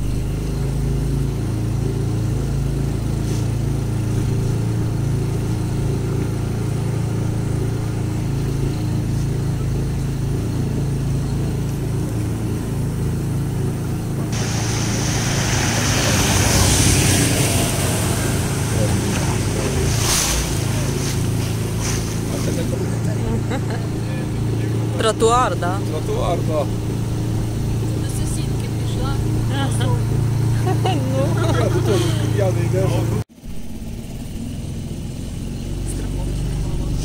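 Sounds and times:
motorboat engine running: 0.0 - 37.0
rushing water and wind: 14.3 - 19.0.

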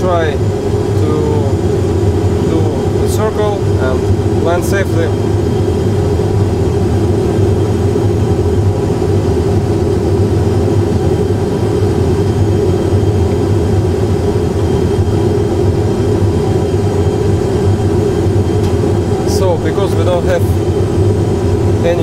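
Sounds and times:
cockpit engine and airflow rumble: 0.0 - 22.0
low steady hum: 0.0 - 22.0.

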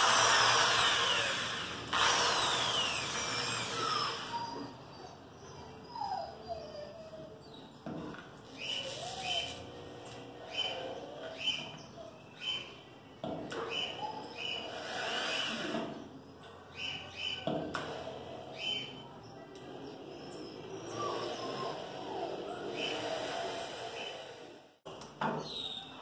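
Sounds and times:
rotary tool drilling into steel: 0.0 - 4.4, 14.4 - 16.0, 22.7 - 24.6.

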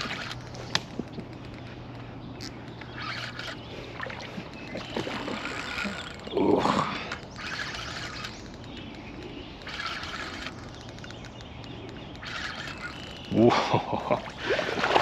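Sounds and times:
fish splashing in water: 14.2 - 15.0.

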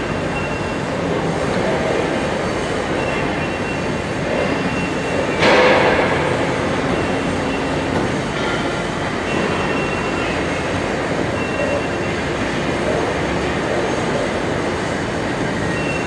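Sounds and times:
industrial machine running: 0.0 - 16.0
loud ringing hit: 5.2 - 9.8.

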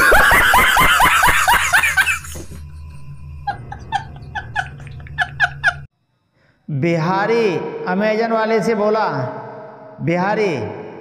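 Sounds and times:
man laughing hysterically: 0.0 - 5.9.

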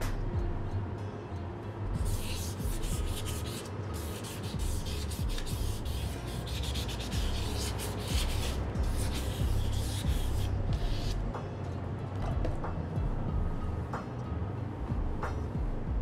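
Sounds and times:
sandpaper scraping on filler: 2.1 - 11.2.

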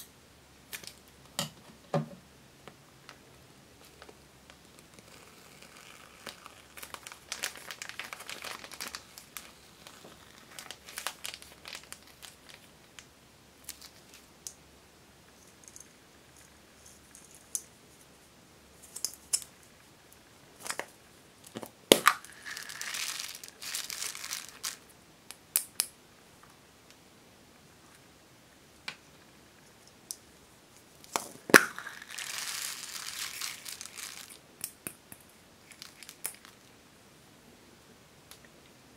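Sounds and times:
plastic bag crinkling: 4.8 - 12.7, 13.6 - 14.3, 21.9 - 24.8, 31.0 - 34.4, 35.6 - 36.7
foam beads pouring: 4.9 - 12.7, 22.0 - 24.8, 31.5 - 34.4.

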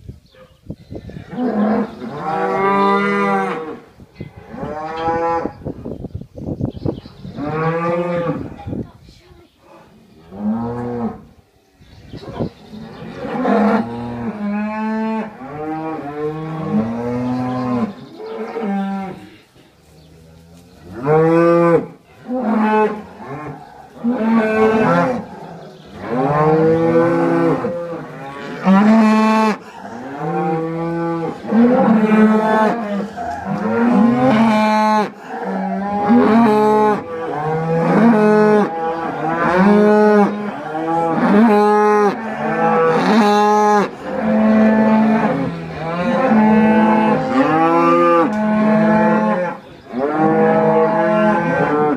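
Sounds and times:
cattle mooing: 21.0 - 51.9.

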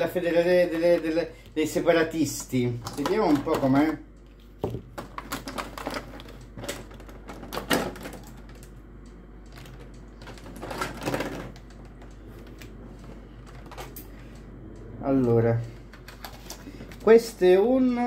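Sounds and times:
plastic packaging crackling: 2.5 - 8.8, 9.5 - 12.7.

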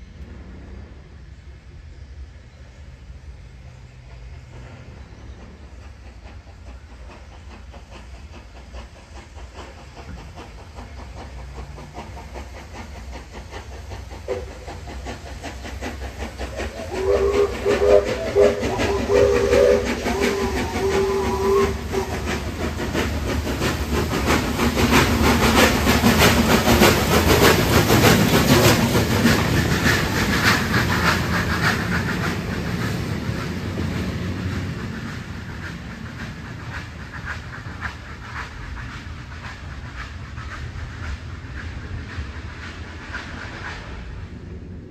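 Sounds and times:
steam train exhaust beats: 0.0 - 44.9
wheels clattering on rails: 4.4 - 44.4
steam locomotive whistle: 14.3 - 14.7, 16.6 - 22.4.

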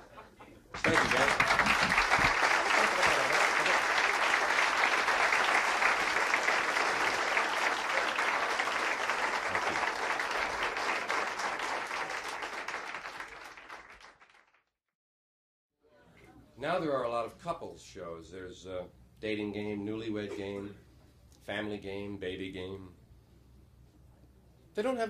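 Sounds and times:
audience applauding: 0.7 - 14.7.

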